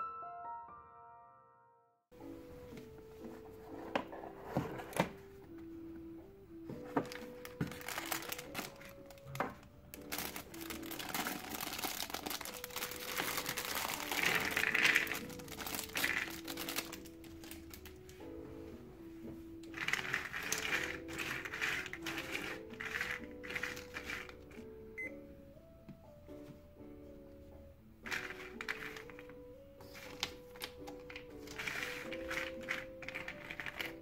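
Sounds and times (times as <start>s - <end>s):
soft piano music: 0.0s - 34.0s
plastic bag crinkling: 7.0s - 18.1s, 19.7s - 24.6s, 28.1s - 34.0s
puzzle pieces spilling onto table: 10.0s - 17.8s, 19.7s - 24.4s, 28.1s - 29.2s, 31.1s - 34.0s.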